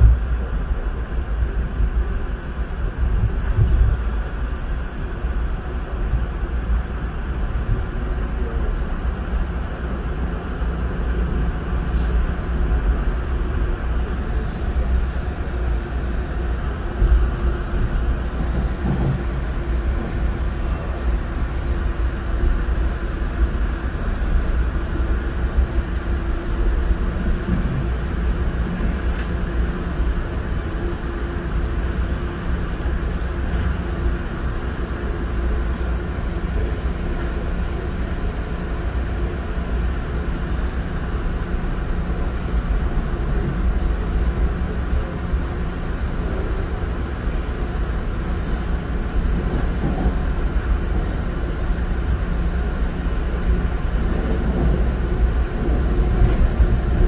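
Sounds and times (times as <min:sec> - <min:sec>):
train rumble inside car: 0:00.0 - 0:57.0.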